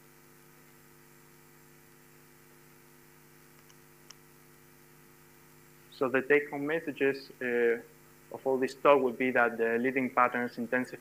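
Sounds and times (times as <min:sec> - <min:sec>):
faint mains hum: 0:00.0 - 0:11.0
faint click: 0:03.5 - 0:04.2.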